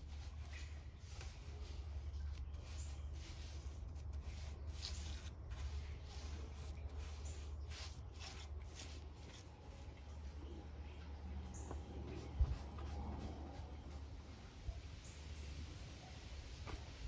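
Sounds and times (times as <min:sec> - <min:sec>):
paintbrush brushing swishes: 0:00.0 - 0:10.0, 0:12.1 - 0:14.2.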